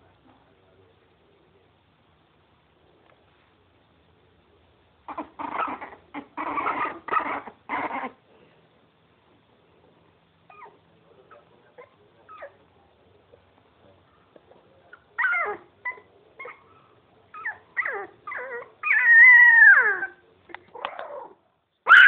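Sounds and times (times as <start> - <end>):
puppy whining cries: 5.1 - 8.2, 15.1 - 16.7, 17.4 - 20.2, 20.8 - 22.0.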